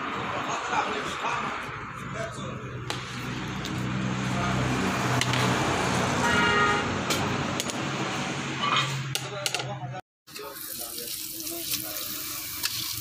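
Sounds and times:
steady engine hum: 0.0s - 8.6s
rushing road noise: 0.0s - 9.3s.

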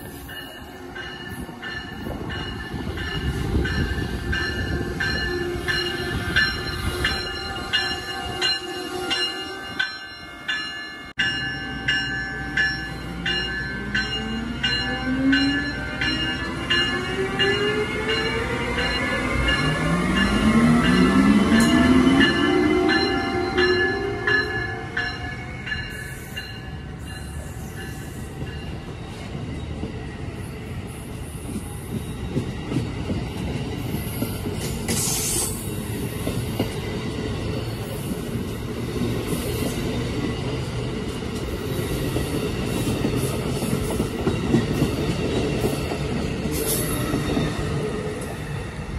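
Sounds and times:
train wheels rumbling on rails: 0.0s - 10.1s, 11.1s - 48.9s
brief hiss: 34.9s - 35.6s.

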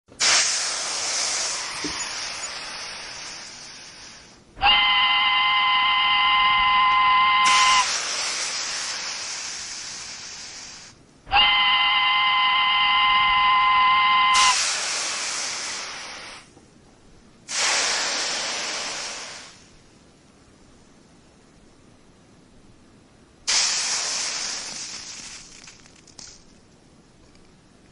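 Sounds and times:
steam hissing bursts: 0.1s - 16.5s, 17.5s - 19.8s, 23.4s - 26.4s
steam whistle blasts: 4.6s - 8.1s, 11.3s - 14.9s.

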